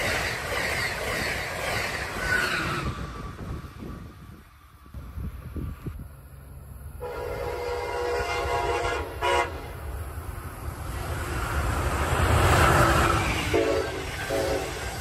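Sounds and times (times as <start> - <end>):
rush of passing train: 0.0 - 15.0
train air horn: 7.0 - 9.8, 13.4 - 14.9.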